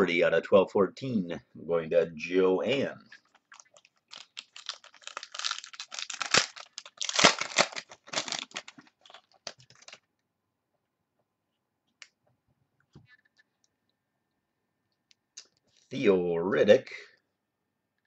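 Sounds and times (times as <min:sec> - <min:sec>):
foil wrapper crinkling: 0:03.2 - 0:10.1.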